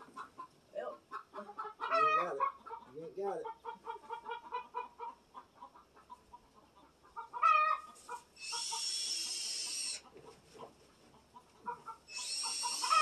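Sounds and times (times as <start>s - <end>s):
chickens clucking: 0.0s - 13.0s
chicken squawk: 1.1s - 10.7s, 11.4s - 13.0s.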